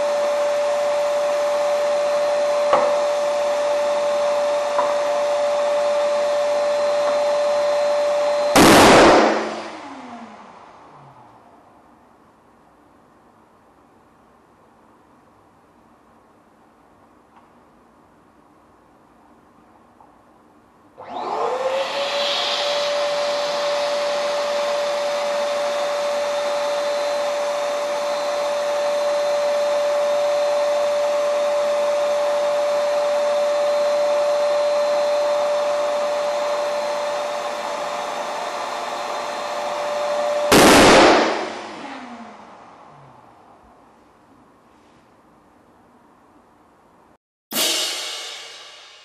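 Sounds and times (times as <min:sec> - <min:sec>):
balloon bursting with loud bang: 0:08.6 - 0:09.8, 0:40.5 - 0:42.0.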